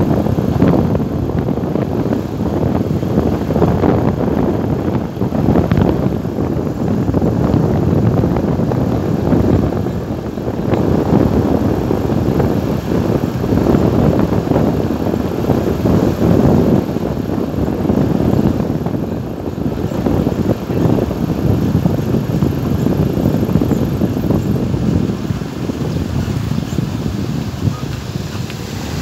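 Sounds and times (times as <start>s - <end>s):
vehicle road noise: 0.0s - 29.0s
wind buffeting microphone: 0.0s - 29.0s.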